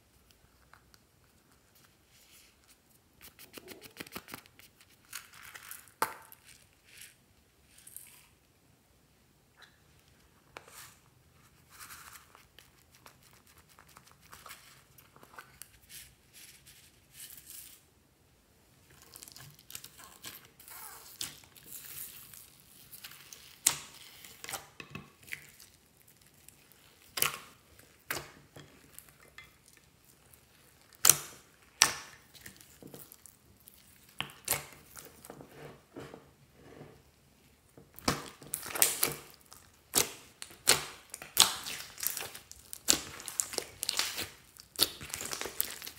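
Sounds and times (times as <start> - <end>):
slime squelching and crackling: 18.8 - 35.3, 37.9 - 45.9.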